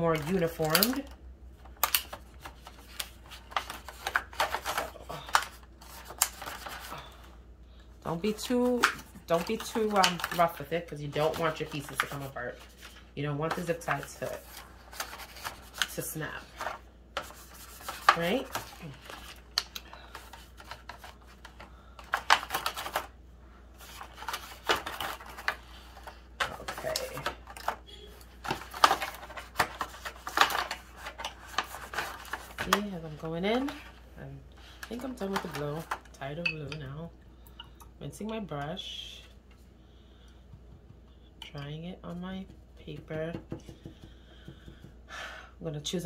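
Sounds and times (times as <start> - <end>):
thin plastic crinkling and clicking: 0.0 - 6.9, 23.8 - 27.8
plastic pieces crackling and clicking: 0.2 - 2.2.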